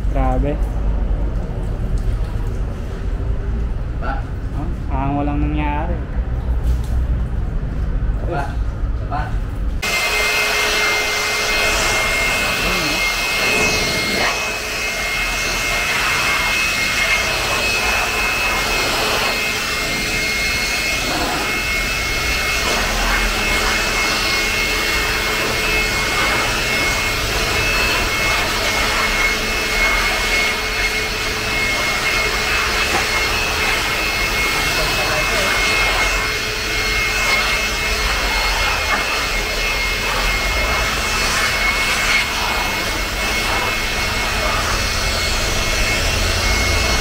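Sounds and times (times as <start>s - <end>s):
electric air blower whining: 9.8s - 47.0s.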